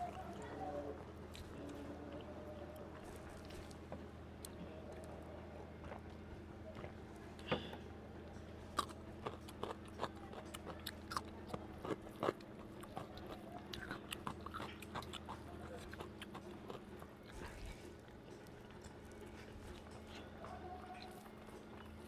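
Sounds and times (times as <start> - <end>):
rice being mixed and eaten by hand: 0.0 - 7.0, 8.4 - 22.0
crisp cucumber bites and chewing: 8.7 - 20.2.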